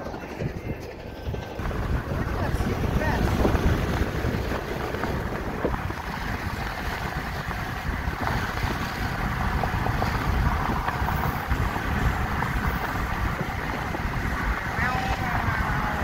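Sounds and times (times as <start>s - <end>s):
wind rushing: 0.0s - 16.0s
road noise inside car: 1.6s - 16.0s.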